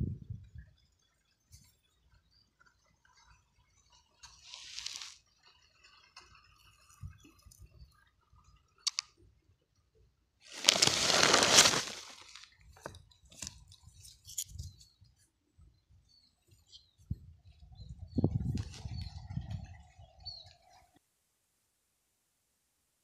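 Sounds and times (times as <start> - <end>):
loud scraping rustle: 4.4 - 5.2, 10.5 - 12.5.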